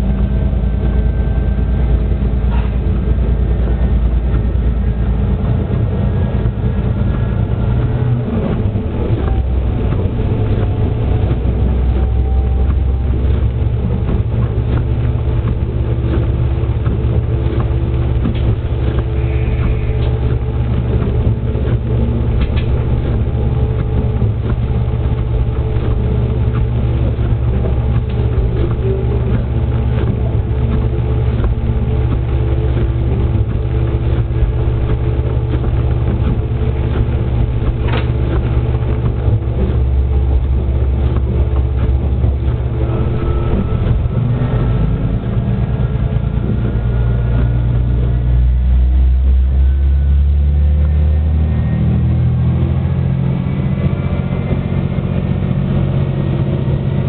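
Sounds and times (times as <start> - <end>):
diesel railcar engine droning: 0.0 - 57.0
wheels running on rails: 0.0 - 57.0
clicks over track: 2.5 - 48.7.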